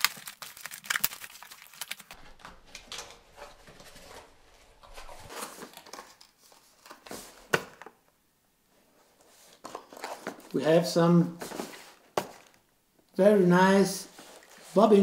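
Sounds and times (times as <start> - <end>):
packing tape tearing: 0.0 - 4.0
cardboard rustling and scraping: 2.1 - 7.5, 9.1 - 10.5, 11.4 - 12.5.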